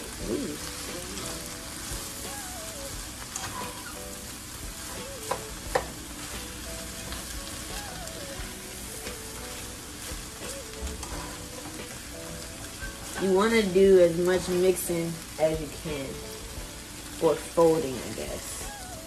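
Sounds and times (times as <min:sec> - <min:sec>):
cabbage sizzling in a frying pan: 0:00.0 - 0:19.0
spatula knocking against pan: 0:05.2 - 0:06.0.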